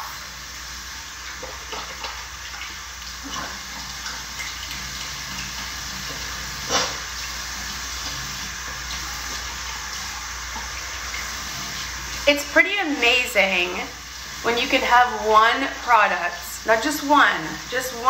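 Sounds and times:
tap running into sink: 1.3s - 9.8s.

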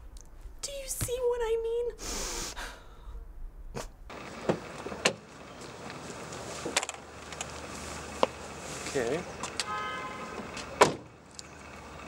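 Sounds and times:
steady outdoor hum: 0.0s - 12.0s
car door clicks and knocks: 10.8s - 11.1s.

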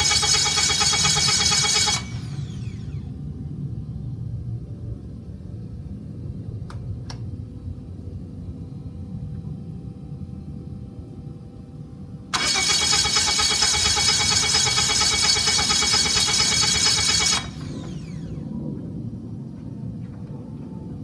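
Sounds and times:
aircraft engine cranking: 0.0s - 3.2s, 12.3s - 18.8s.

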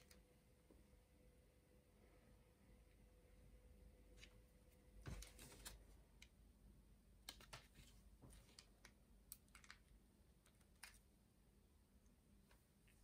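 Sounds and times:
small plastic clicks: 8.4s - 11.1s.

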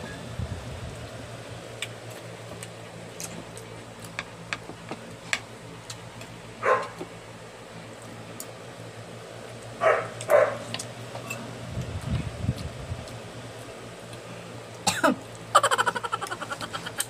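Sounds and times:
electric fan humming: 0.0s - 17.0s
dog barking: 6.6s - 7.0s, 9.8s - 10.6s.

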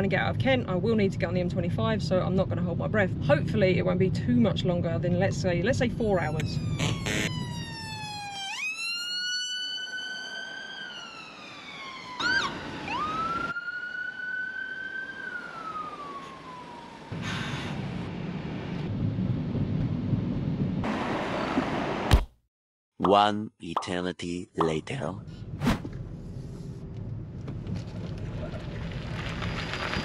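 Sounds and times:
road noise rumble: 0.0s - 22.2s, 24.9s - 30.0s
ambulance siren wailing: 6.2s - 17.5s.

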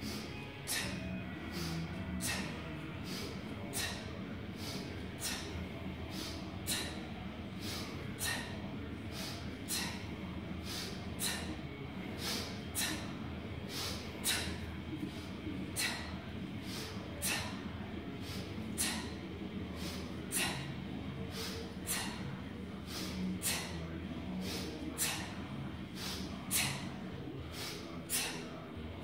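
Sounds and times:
sharp hissing breaths: 0.0s - 4.0s, 4.6s - 5.5s, 6.1s - 13.1s, 13.7s - 14.6s, 15.8s - 17.6s, 18.2s - 19.2s, 21.3s - 22.2s, 22.8s - 23.8s, 24.4s - 25.4s, 26.0s - 28.5s
low room hum: 0.0s - 29.0s.

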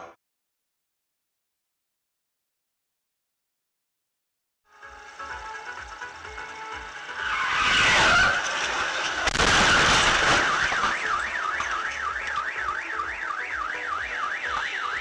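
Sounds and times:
car alarm wailing: 7.1s - 15.0s
car crash crunching: 7.1s - 15.0s.

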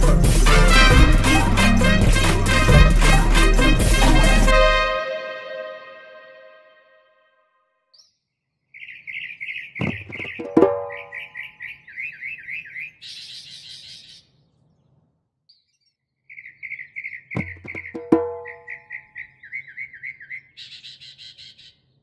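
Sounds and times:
bird chirps: 7.9s - 22.0s
hollow ringing knocks: 9.8s - 11.2s, 17.4s - 18.7s.

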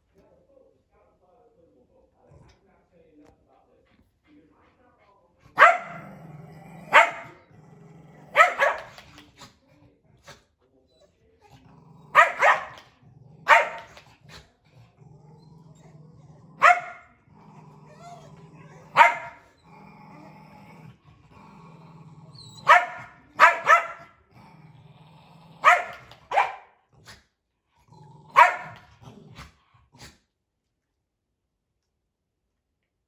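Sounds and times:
small dogs growling: 2.2s - 2.6s, 5.6s - 10.3s, 11.3s - 30.3s
small dogs barking sharply: 5.6s - 6.0s, 6.9s - 7.4s, 8.3s - 9.0s, 12.1s - 12.8s, 13.5s - 14.0s, 16.6s - 17.1s, 18.9s - 19.4s, 22.6s - 24.1s, 25.6s - 26.7s, 28.4s - 28.9s.

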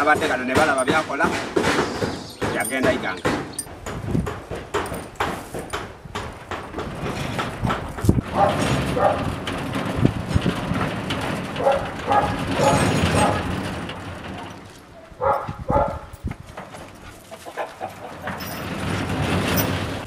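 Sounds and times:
dog barking aggressively: 8.3s - 9.4s, 11.6s - 13.6s, 15.0s - 16.1s.

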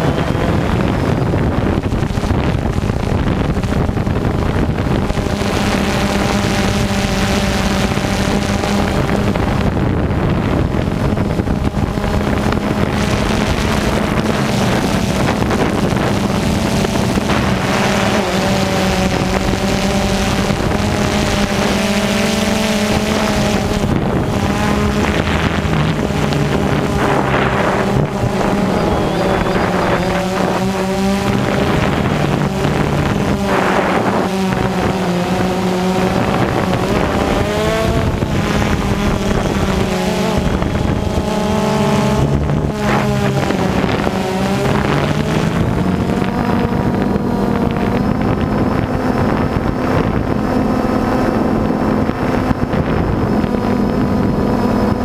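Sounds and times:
drone propellers buzzing: 0.0s - 55.0s
wind on microphone: 0.0s - 55.0s.

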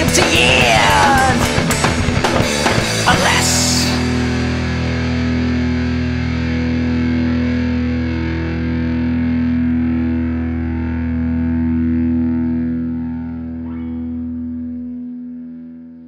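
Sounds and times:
distorted electric guitar chord ringing: 0.0s - 16.0s.

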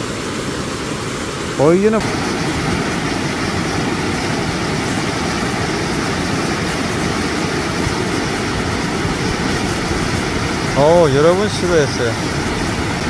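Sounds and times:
waterfall rushing over rocks: 0.0s - 13.0s.

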